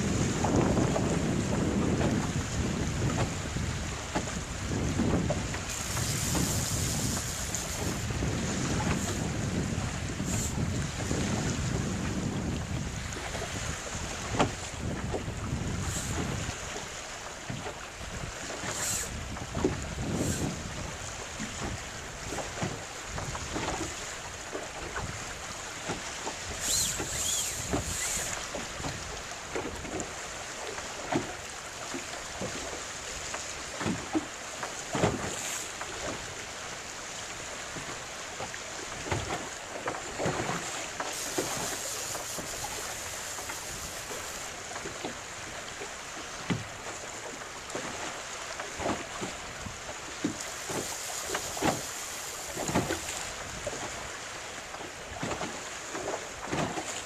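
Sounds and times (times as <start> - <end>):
wind on microphone: 0.0 - 24.0, 24.8 - 30.0, 40.1 - 45.6, 48.8 - 54.2
waves slapping boat hull: 0.0 - 57.0.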